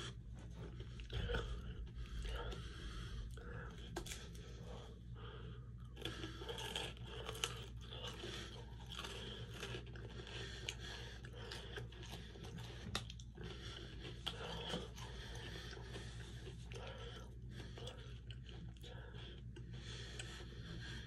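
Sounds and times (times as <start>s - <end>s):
crunching of ice cream cone: 5.9s - 16.9s.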